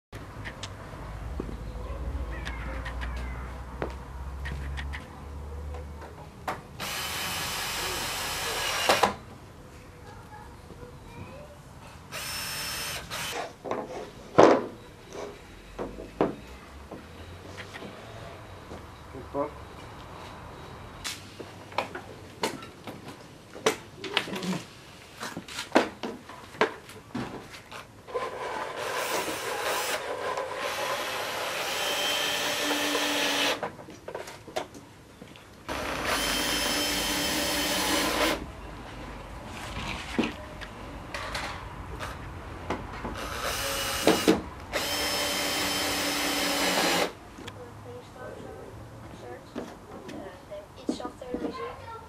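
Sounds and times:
cordless drill driving screws: 6.8s - 9.2s, 12.1s - 13.5s, 28.8s - 33.6s, 35.7s - 38.4s, 43.2s - 47.2s.

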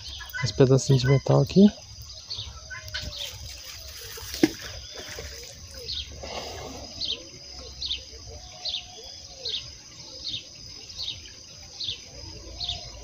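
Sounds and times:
pond water sloshing: 3.0s - 6.2s.

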